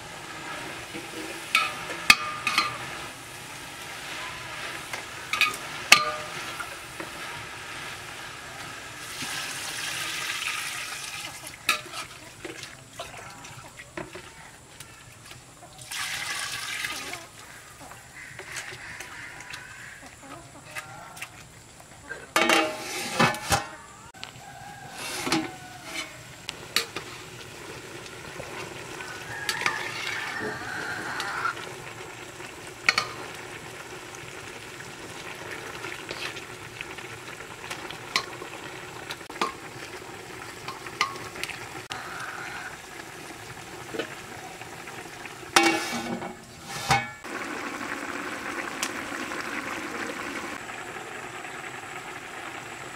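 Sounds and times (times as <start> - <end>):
hiss of cooking: 0.0 - 52.9
metal ladle scraping a pot: 0.3 - 3.2, 3.8 - 7.9, 11.6 - 12.5, 22.4 - 23.8, 24.8 - 27.3, 29.5 - 31.5, 45.5 - 47.3
metal lid clattering onto pot: 1.5 - 2.9, 22.4 - 23.7, 45.6 - 47.2.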